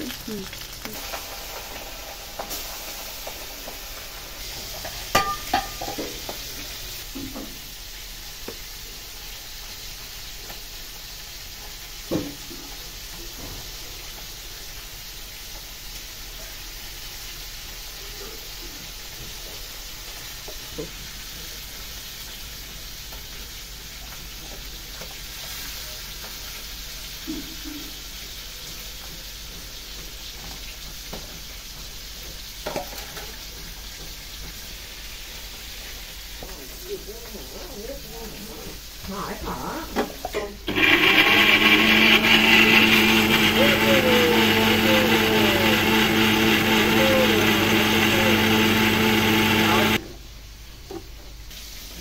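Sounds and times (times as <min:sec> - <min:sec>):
metal kitchen vessels clinking: 0:05.2 - 0:06.1.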